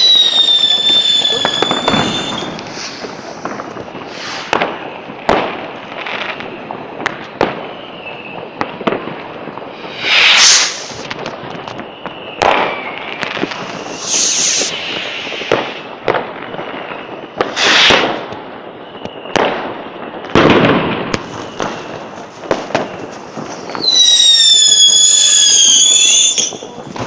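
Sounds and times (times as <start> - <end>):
firework hissing bursts: 0.0 - 5.0, 9.7 - 11.4, 12.6 - 16.2, 17.4 - 18.3
firecracker bangs: 0.0 - 6.4, 8.6 - 27.0
whistling firework: 0.0 - 27.0.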